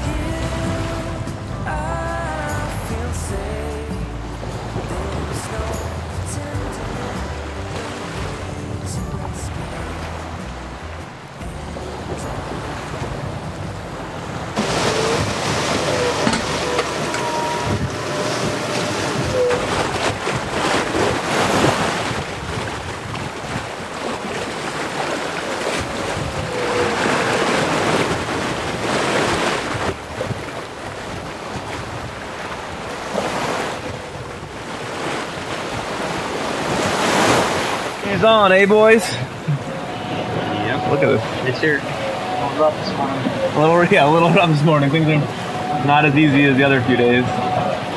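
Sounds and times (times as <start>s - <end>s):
rough sea rushing along boat: 0.0s - 47.9s
wind buffeting microphone: 0.0s - 47.9s.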